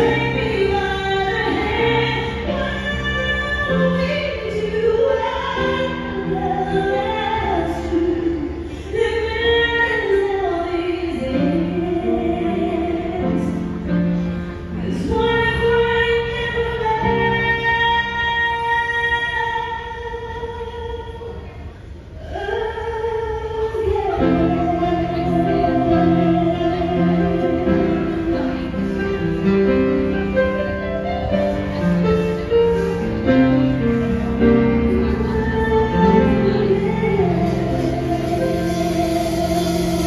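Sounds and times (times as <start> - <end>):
keyboard: 0.0 - 22.2.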